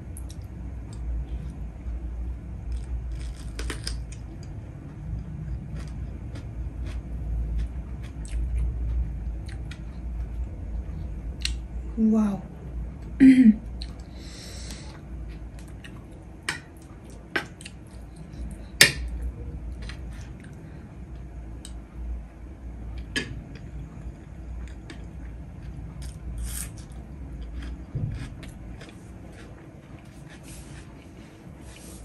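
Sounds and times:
person chewing food: 2.7 - 11.6, 13.8 - 20.6, 23.0 - 31.9.

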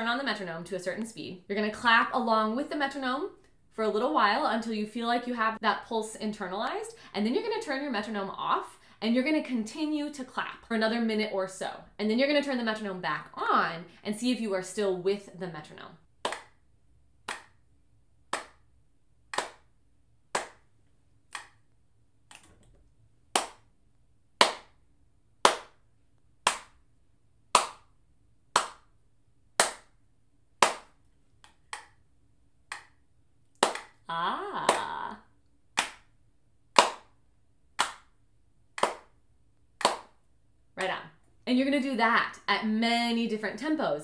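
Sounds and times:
hand claps steady beat: 16.2 - 16.6, 17.3 - 17.6, 18.3 - 18.7, 19.3 - 19.7, 20.3 - 20.7, 21.3 - 21.6, 23.3 - 23.7, 24.4 - 24.8, 25.4 - 25.8, 26.4 - 26.8, 27.5 - 27.9, 28.5 - 28.9, 29.6 - 29.9, 30.6 - 31.0, 32.7 - 32.9, 33.6 - 34.0, 34.6 - 35.1, 35.8 - 36.0, 36.8 - 37.2, 37.8 - 38.1, 38.8 - 39.1, 39.8 - 40.2.

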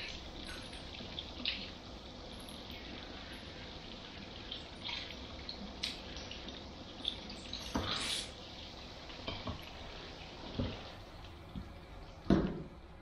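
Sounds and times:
spray water running over hair: 7.0 - 8.5.

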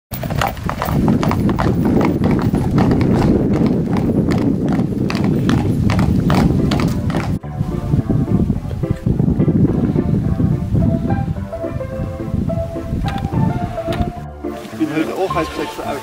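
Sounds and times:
carriage wheels rumbling: 0.1 - 7.4
horse hooves clip-clopping on pavement: 0.1 - 7.4, 12.9 - 16.0.

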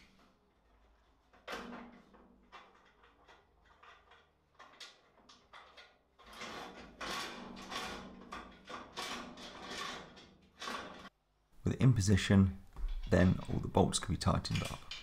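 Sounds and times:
metal rail scraping and sliding: 0.0 - 11.1.

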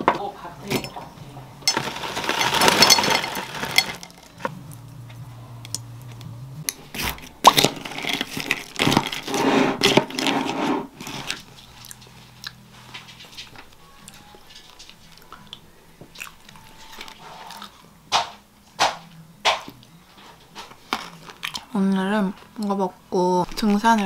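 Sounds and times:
granola rattling into a bowl: 1.7 - 4.4, 7.4 - 10.3
spoon stirring and scraping: 1.7 - 4.5.

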